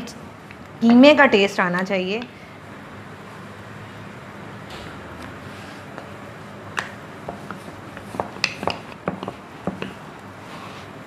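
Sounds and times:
rolling pin clicking on wooden board: 0:06.8 - 0:10.0.

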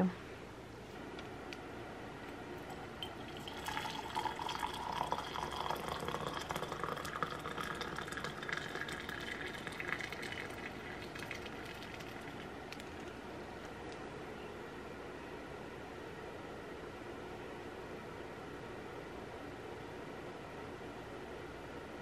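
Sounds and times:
water pouring into mug: 0:02.7 - 0:13.1.

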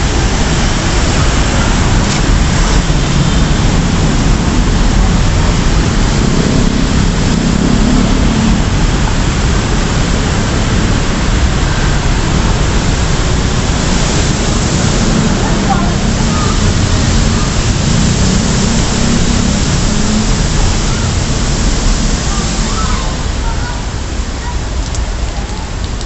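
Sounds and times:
steady rain hiss: 0:00.0 - 0:26.0.

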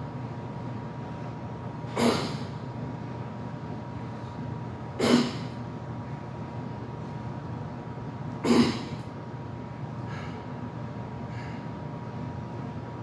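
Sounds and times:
steady low hum: 0:00.0 - 0:13.0
man exhaling forcefully: 0:01.9 - 0:02.6, 0:08.5 - 0:09.0.

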